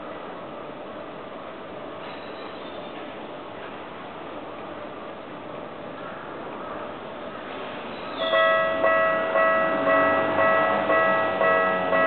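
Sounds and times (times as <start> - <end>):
level-crossing alarm ringing: 8.2 - 12.0.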